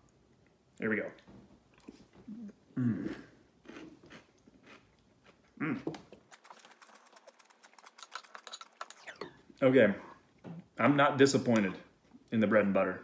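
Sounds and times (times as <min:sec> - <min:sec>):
person chewing with soft crunching: 0:01.7 - 0:09.0.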